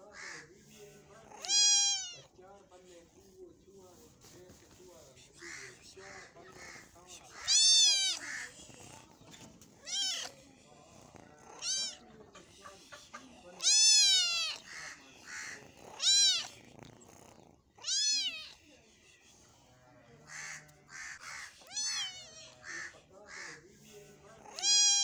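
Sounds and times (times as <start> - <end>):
kitten meowing: 1.3 - 2.3, 7.3 - 8.5, 9.8 - 10.4, 11.5 - 12.0, 13.6 - 14.9, 15.9 - 16.6, 17.8 - 18.6, 21.6 - 22.6, 24.5 - 25.0.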